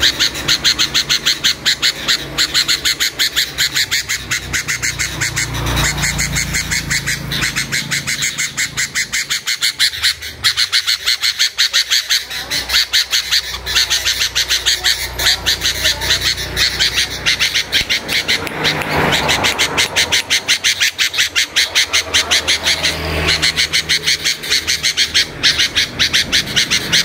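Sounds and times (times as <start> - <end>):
caged songbird chirping: 0.0 - 27.0.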